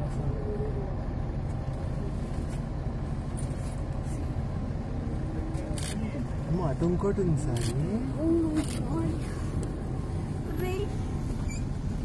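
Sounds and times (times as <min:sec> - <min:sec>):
bus engine idling: 0:00.0 - 0:12.0.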